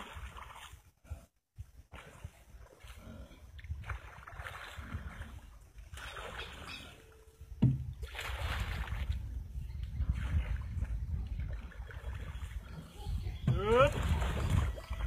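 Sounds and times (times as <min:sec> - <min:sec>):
paddle splashing water: 0:00.0 - 0:15.0
sharp thump: 0:07.6 - 0:07.9.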